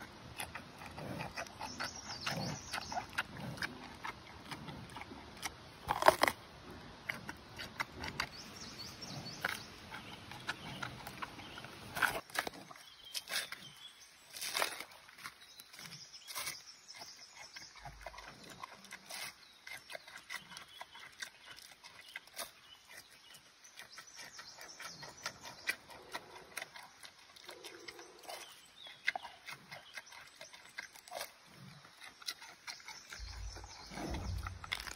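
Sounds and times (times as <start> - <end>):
panda chewing bamboo: 24.8 - 34.9.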